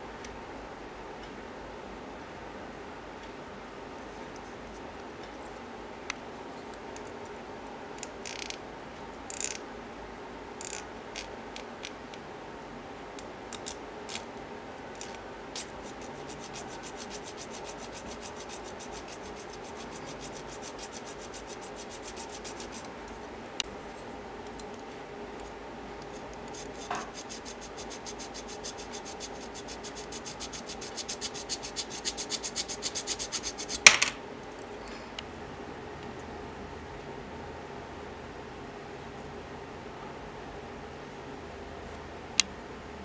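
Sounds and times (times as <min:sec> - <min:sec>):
steady background hum: 0:00.0 - 0:43.0
knife scratching metal: 0:15.0 - 0:22.9, 0:26.0 - 0:33.9.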